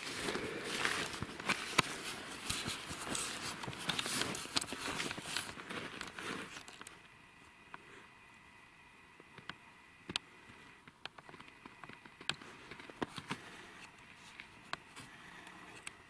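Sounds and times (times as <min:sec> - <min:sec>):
footsteps crunching through snow: 0:00.0 - 0:06.7
camera handling noise: 0:00.8 - 0:07.0.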